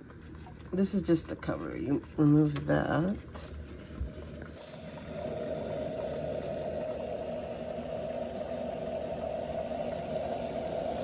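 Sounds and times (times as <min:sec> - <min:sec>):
espresso machine running: 0:03.1 - 0:11.0.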